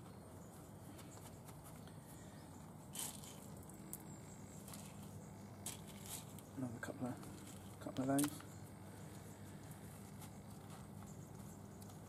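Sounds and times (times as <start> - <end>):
low steady hum: 0.0 - 12.0
sharp rustle: 0.5 - 3.6
handling bait bag: 2.6 - 3.7, 4.6 - 6.5.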